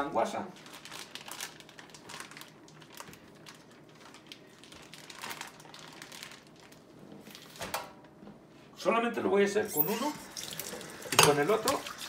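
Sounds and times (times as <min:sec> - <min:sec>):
plastic bag crinkling: 0:00.4 - 0:07.6.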